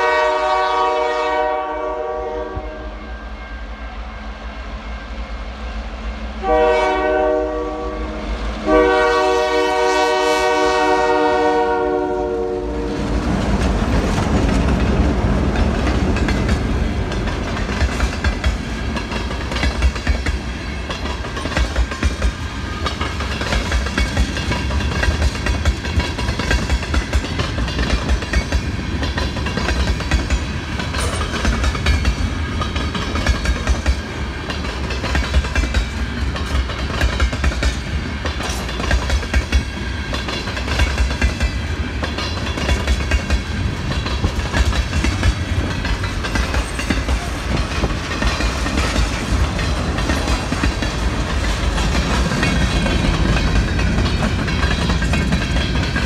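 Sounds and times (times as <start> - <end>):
locomotive air horn: 0.0 - 3.2, 6.4 - 13.1
locomotive passing: 2.2 - 56.0
train wheels clicking over rails: 11.6 - 56.0.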